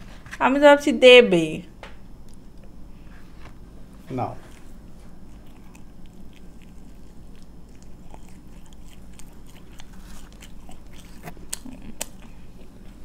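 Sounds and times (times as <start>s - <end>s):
person chewing food: 4.4s - 13.0s
wet mouth clicks and smacks: 11.2s - 12.3s.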